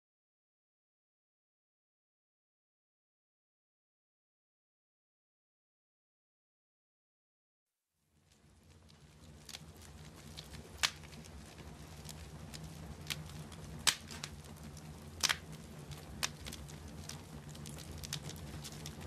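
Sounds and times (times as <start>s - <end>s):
wood fire crackling and popping: 8.1s - 19.0s
low steady rumble: 8.2s - 19.0s.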